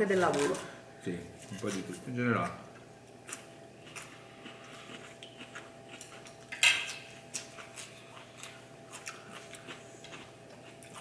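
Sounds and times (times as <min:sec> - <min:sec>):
cutlery clatter: 0:06.5 - 0:07.0
cutlery clicking on ceramic plates: 0:06.5 - 0:07.1.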